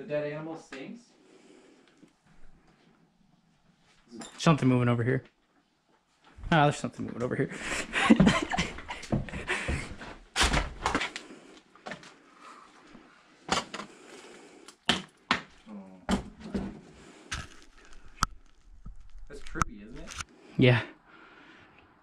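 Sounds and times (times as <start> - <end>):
wooden doors and debris knocking: 8.1 - 11.1.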